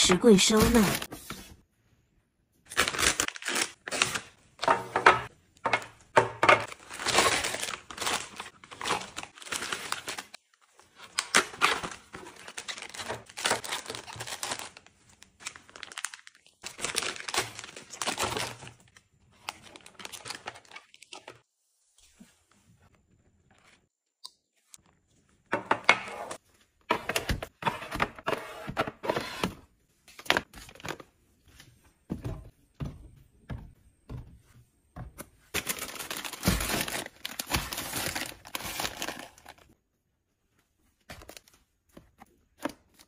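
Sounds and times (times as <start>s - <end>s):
plastic wrappers crinkling: 2.7s - 4.4s, 6.6s - 21.4s, 35.5s - 39.8s.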